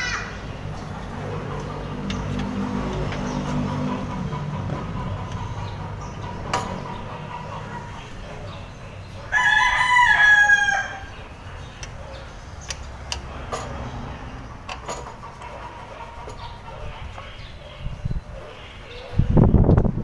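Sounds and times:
engine cover clicks and knocks: 1.5 - 3.8, 6.3 - 7.0, 14.6 - 15.6
rooster crowing: 9.3 - 11.2.

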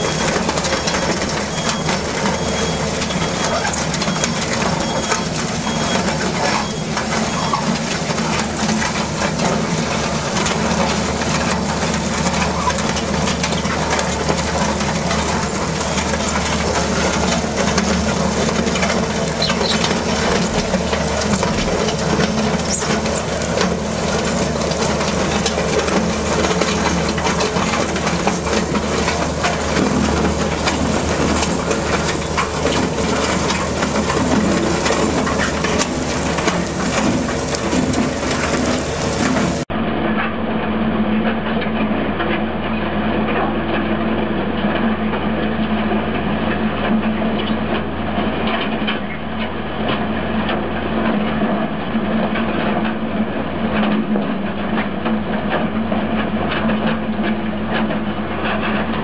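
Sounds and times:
loader engine under load: 0.0 - 39.7.

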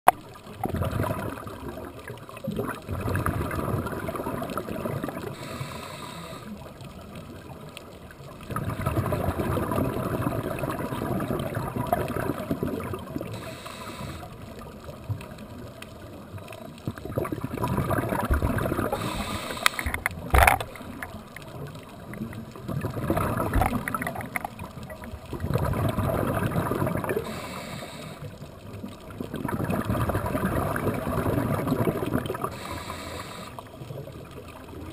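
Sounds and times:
underwater exhaled bubbles gurgling: 0.1 - 34.9
regulator inhale hiss: 5.3 - 6.7, 13.2 - 14.5, 18.9 - 20.0, 27.2 - 28.5, 32.4 - 33.8.

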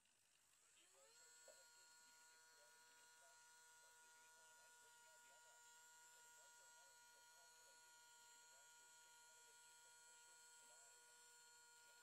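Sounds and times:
small motor electric whine: 0.0 - 12.0.

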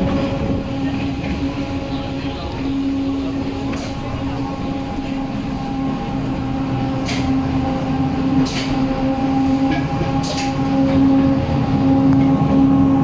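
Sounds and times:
electric train hum and rumble: 0.0 - 13.0.

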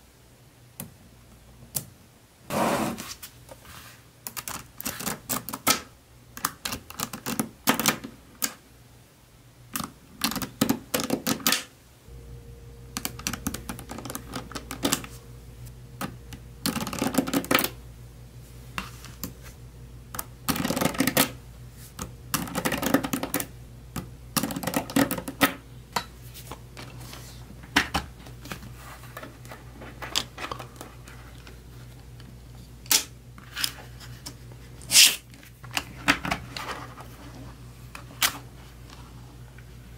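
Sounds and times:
magnetic balls clicking: 12.9 - 15.1, 16.0 - 17.8.

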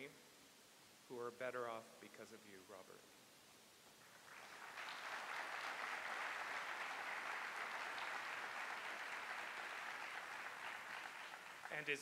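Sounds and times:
audience applause: 4.1 - 12.0.

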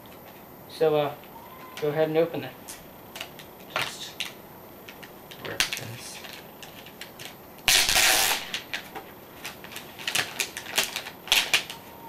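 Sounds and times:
plastic crinkling: 5.3 - 12.0
plastic wrap tearing: 7.0 - 12.0.

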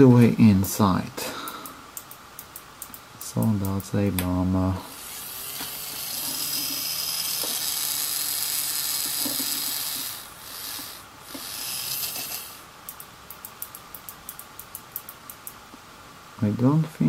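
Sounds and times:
small electric motor whining: 4.9 - 12.7.

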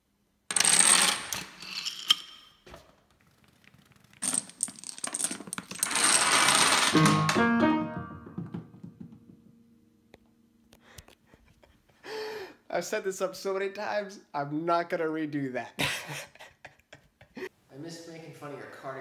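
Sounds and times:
small pieces rattling and clattering: 3.7 - 7.1
upright piano notes: 6.9 - 9.7.

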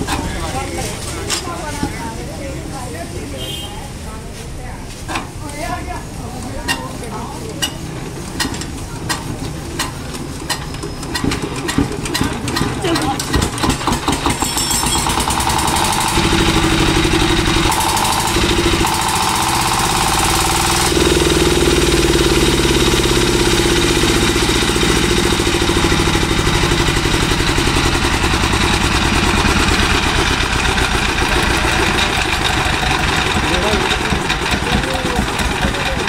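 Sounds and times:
diesel engine running: 7.9 - 36.0.

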